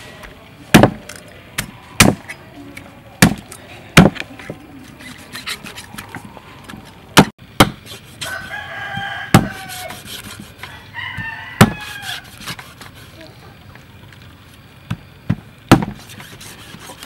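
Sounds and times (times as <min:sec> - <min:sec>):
cleaver chopping on wooden block: 0:00.8 - 0:01.0, 0:01.6 - 0:02.2, 0:03.2 - 0:03.4, 0:04.0 - 0:04.2, 0:07.2 - 0:07.8, 0:08.9 - 0:10.4, 0:11.2 - 0:12.6, 0:15.7 - 0:16.0
rooster crowing: 0:08.2 - 0:12.4.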